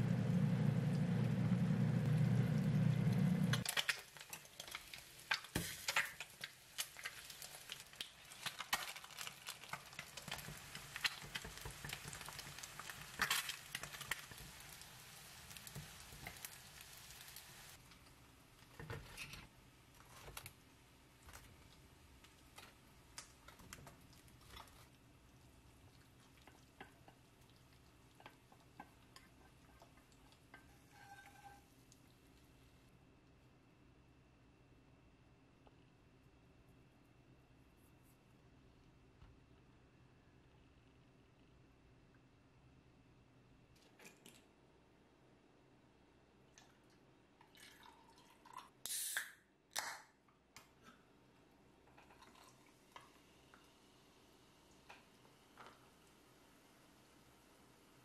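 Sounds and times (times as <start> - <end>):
noodles sizzling in a pan: 0.0 - 18.6, 21.1 - 32.8, 51.9 - 58.0.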